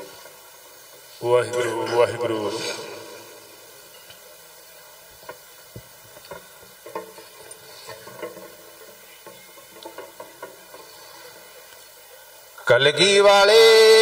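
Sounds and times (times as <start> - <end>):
low background noise: 0.0 - 14.0.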